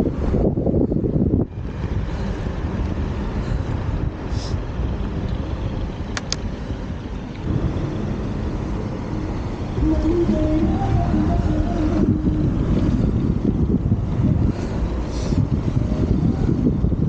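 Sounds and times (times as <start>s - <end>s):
bicycle road rumble: 0.0s - 17.0s
car traffic: 0.0s - 17.0s
wind rush on microphone: 0.0s - 17.0s
sharp clicks: 6.1s - 6.5s.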